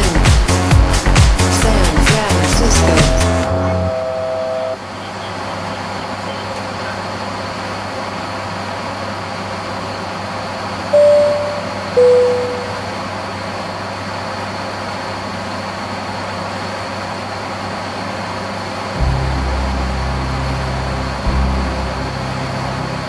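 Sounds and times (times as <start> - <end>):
turboprop engine and propeller drone: 0.0 - 23.0
short loud cockpit tones: 3.0 - 4.8, 11.0 - 13.2
held tone: 3.1 - 4.8, 11.0 - 13.2
faint high whine: 3.3 - 6.5, 10.9 - 13.5.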